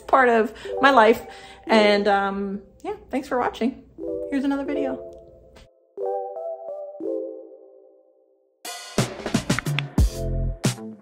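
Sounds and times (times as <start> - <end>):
music with drums and cymbals: 8.7 - 11.0.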